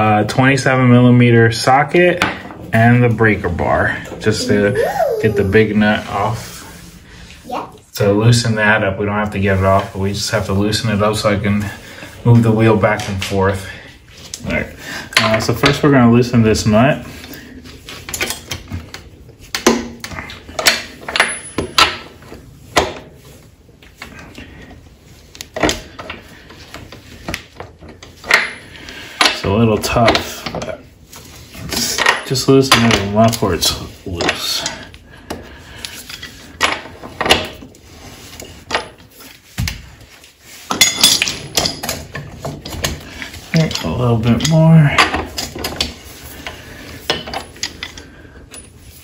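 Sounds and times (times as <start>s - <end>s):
metal tools clinking: 40.7s - 42.2s.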